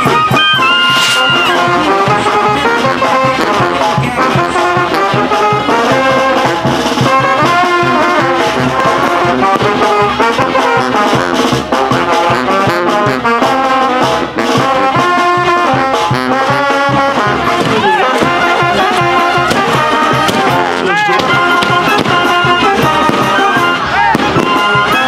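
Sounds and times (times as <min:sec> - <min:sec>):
brass band playing: 0:00.0 - 0:25.0.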